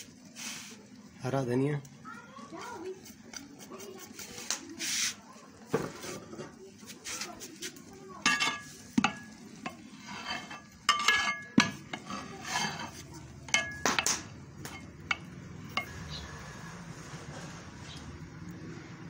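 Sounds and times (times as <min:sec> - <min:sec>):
metal ladle scraping a pot: 0:08.2 - 0:13.8, 0:14.6 - 0:16.0.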